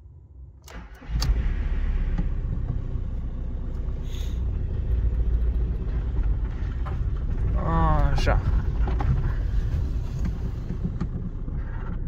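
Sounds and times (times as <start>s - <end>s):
car engine rumbling: 0.0s - 12.0s.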